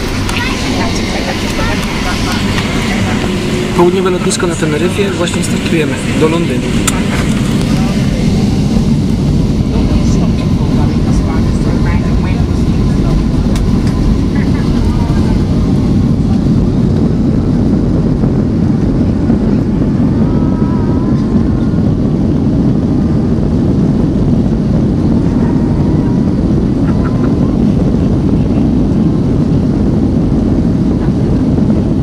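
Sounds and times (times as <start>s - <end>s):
jet engines rumbling: 0.0s - 32.0s.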